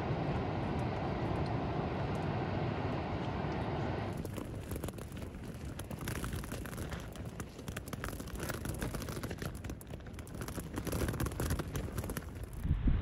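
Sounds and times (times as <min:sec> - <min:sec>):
tent fabric patter and crinkle: 0:03.8 - 0:12.7.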